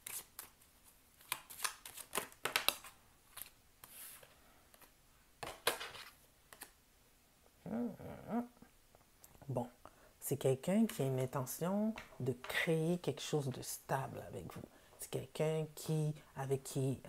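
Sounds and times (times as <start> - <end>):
cards being shuffled: 0.0 - 6.8.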